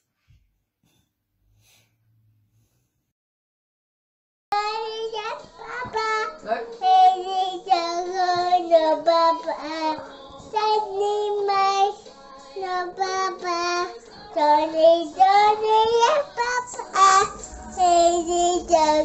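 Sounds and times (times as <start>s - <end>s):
child singing: 4.5s - 19.0s.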